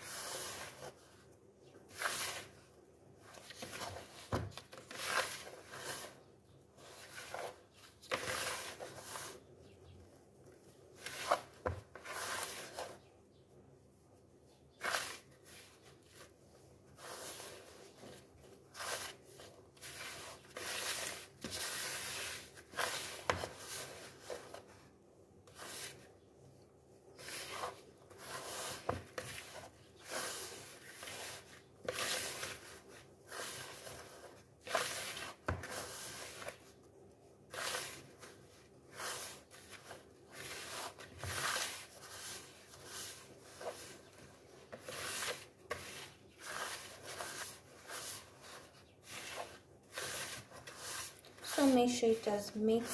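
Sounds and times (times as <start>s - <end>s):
hand mixing dough in bowl: 0.0s - 9.5s, 13.9s - 24.9s, 25.5s - 52.9s.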